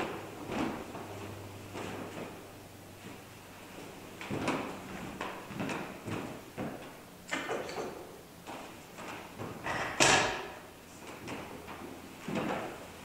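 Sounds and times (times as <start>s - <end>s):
footsteps on wooden floor: 3.0s - 7.0s
objects knocking and clunking: 4.2s - 8.1s, 9.0s - 10.6s.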